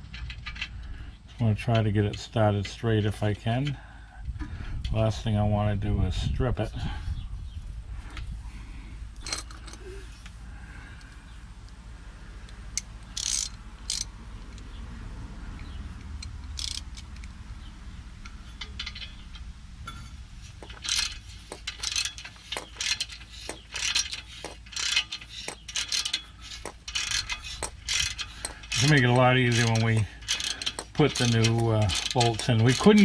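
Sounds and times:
ratcheting wrench clicking: 0:12.8 - 0:14.7, 0:15.6 - 0:17.4, 0:20.6 - 0:33.0.

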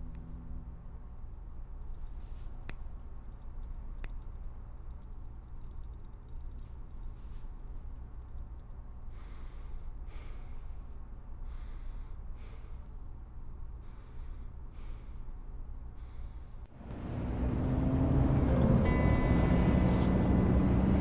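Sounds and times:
steady low hum: 0:00.0 - 0:21.0
person breathing in sleep: 0:09.1 - 0:13.1, 0:13.8 - 0:15.4, 0:16.0 - 0:16.7.

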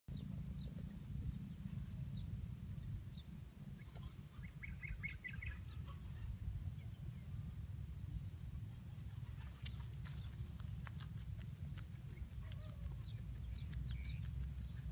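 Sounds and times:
bird chirps: 0:03.1 - 0:07.4, 0:12.1 - 0:14.9.

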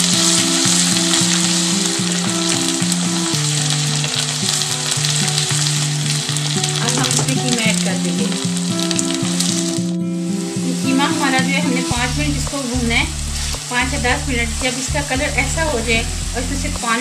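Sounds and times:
wooden spatula stirring in pan: 0:00.0 - 0:07.9
onions sizzling in hot oil: 0:00.0 - 0:17.0.

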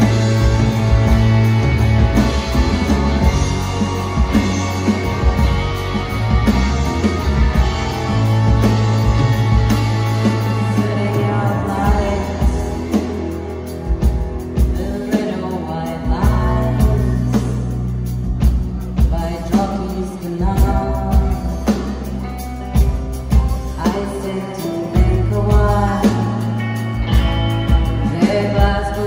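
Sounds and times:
live band playing: 0:00.0 - 0:29.0
steady drum beat: 0:00.0 - 0:29.0
lead vocal singing: 0:10.0 - 0:13.6, 0:14.6 - 0:17.8, 0:23.7 - 0:27.2, 0:27.8 - 0:29.0.

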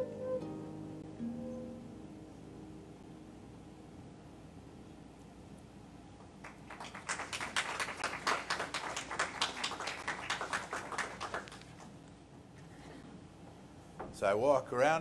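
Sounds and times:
small audience applauding: 0:06.4 - 0:12.0.

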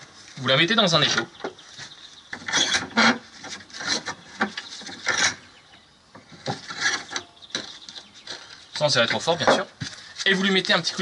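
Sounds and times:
vise screw scraping and rubbing: 0:02.4 - 0:05.5, 0:06.5 - 0:07.3.

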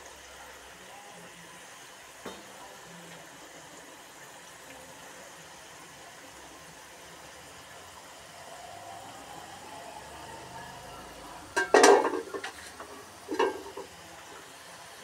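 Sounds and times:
oil sizzling: 0:00.0 - 0:15.0
metal skimmer scraping pan: 0:11.5 - 0:13.9.

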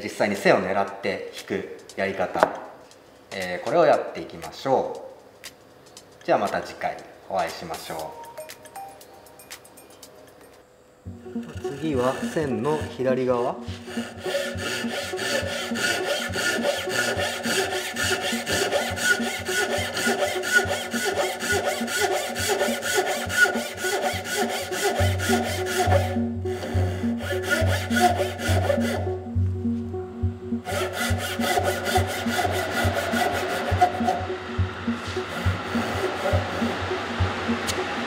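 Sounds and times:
background music with bass: 0:11.1 - 0:20.1, 0:24.5 - 0:38.0
handsaw cutting wood: 0:11.2 - 0:29.1, 0:30.6 - 0:37.8.

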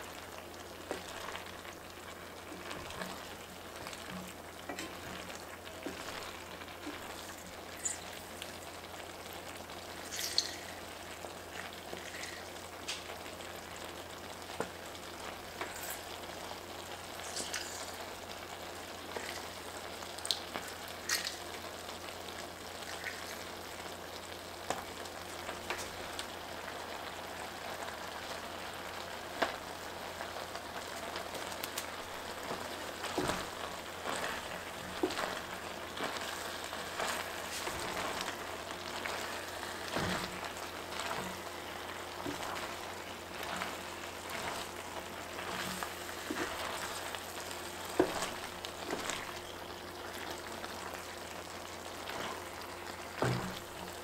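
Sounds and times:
pasta and meat sizzling: 0:00.0 - 0:54.0
wooden spatula scraping a pan: 0:32.4 - 0:38.4, 0:39.0 - 0:49.5.

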